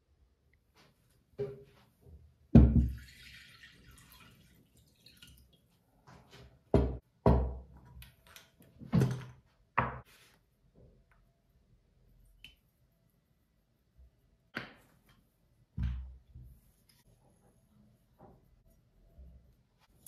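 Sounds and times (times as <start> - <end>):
water pouring into bowl: 2.9 - 5.6.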